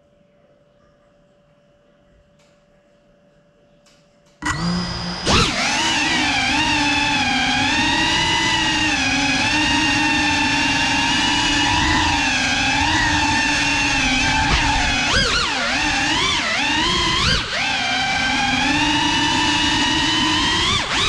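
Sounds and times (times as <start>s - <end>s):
drone motors whining: 4.4s - 21.0s.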